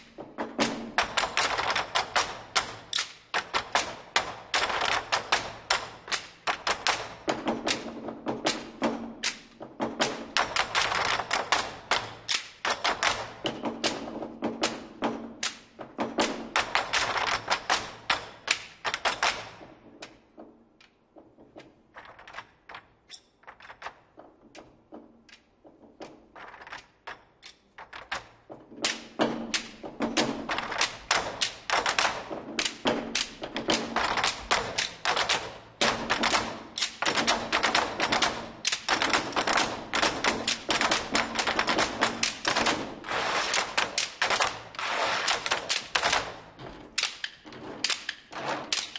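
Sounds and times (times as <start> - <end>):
barrel drums played with sticks: 28.4 - 44.0.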